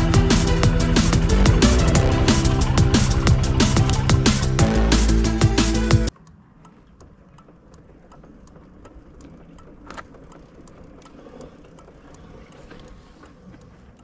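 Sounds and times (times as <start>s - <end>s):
motorcycle engine idling: 0.0s - 6.1s
light even ticking: 0.0s - 14.0s.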